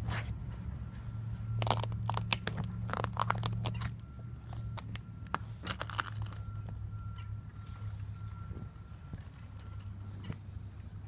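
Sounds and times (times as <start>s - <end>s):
steady low hum: 0.0s - 11.0s
ice cracking: 1.6s - 5.0s, 5.6s - 6.4s.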